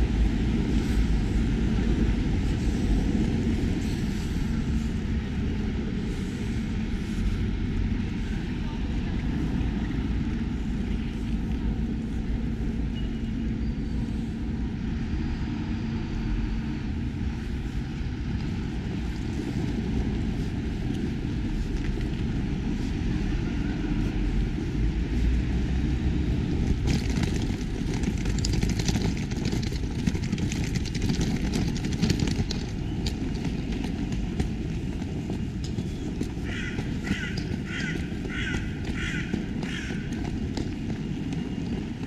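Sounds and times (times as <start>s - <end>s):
distant traffic rumble: 0.0s - 42.0s
wind: 0.0s - 42.0s
footsteps on stone paving: 17.6s - 42.0s.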